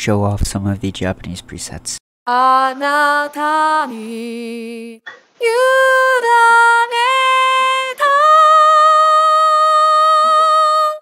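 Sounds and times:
synthesized female singing voice: 2.3s - 11.0s.

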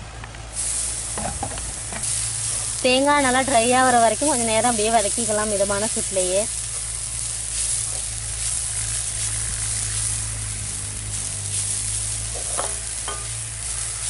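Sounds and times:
coconut sizzling in a pan: 0.4s - 14.0s.

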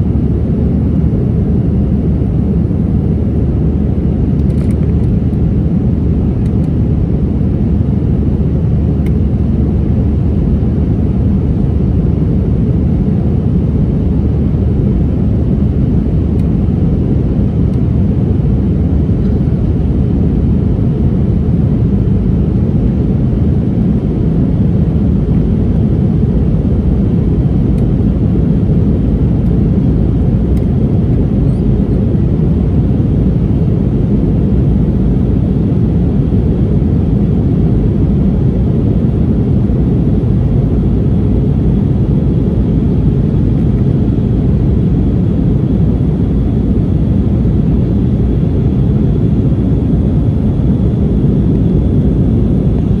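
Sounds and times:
airplane cabin drone: 0.0s - 53.0s.

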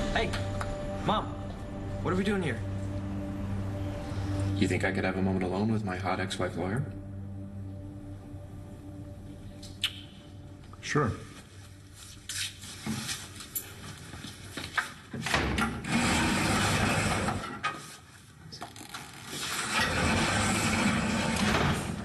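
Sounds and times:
jail cell door sliding: 15.2s - 17.7s, 19.4s - 22.0s.

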